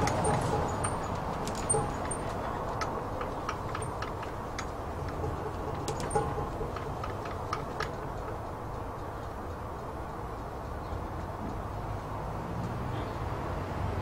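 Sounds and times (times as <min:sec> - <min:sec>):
light ticks and clicks: 0:00.0 - 0:13.3
low outdoor rumble: 0:00.0 - 0:14.0.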